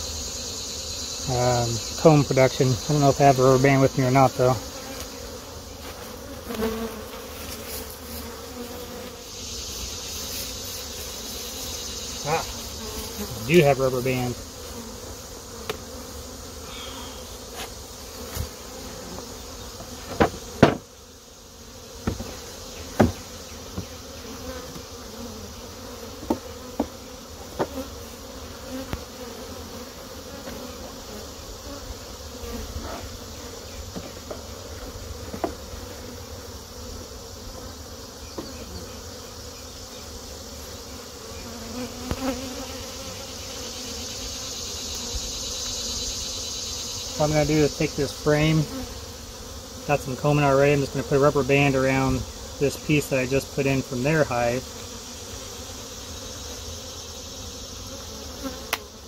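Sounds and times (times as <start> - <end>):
bees buzzing: 0.0 - 59.0
wooden hive boxes knocking: 17.6 - 20.9, 22.0 - 24.0, 26.2 - 27.9, 33.9 - 34.5, 35.2 - 35.7, 42.0 - 42.5.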